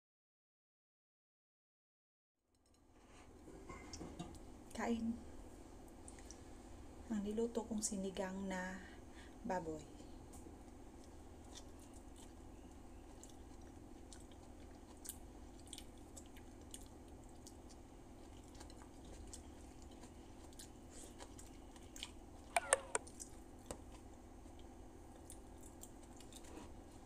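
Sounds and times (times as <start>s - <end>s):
person chewing food: 10.2s - 27.0s.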